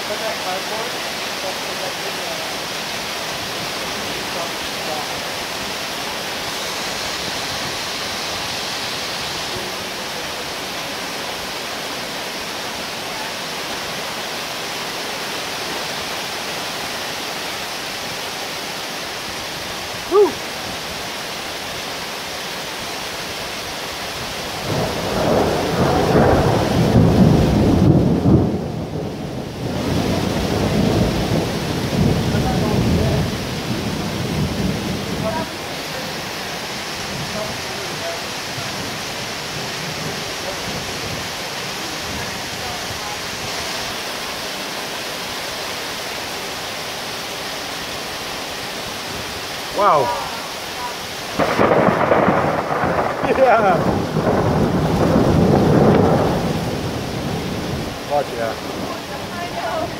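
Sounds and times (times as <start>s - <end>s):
heavy rain falling: 0.0s - 59.9s
thunderclap rolling: 24.5s - 35.6s, 51.3s - 59.9s.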